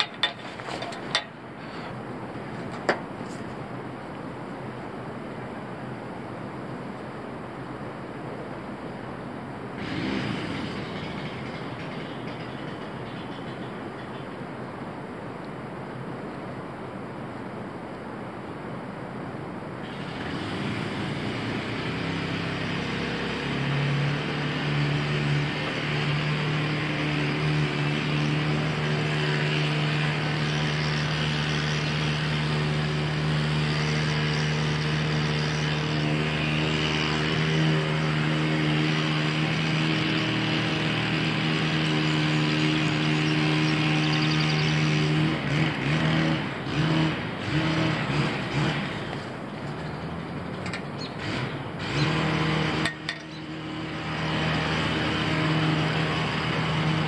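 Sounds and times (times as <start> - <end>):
engine-driven machine humming: 0.0 - 3.7, 9.8 - 14.2, 19.8 - 57.0.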